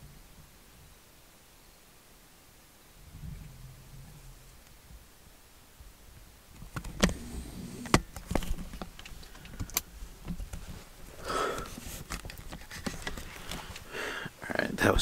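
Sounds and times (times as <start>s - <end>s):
rustling and breathing: 8.6s - 14.4s.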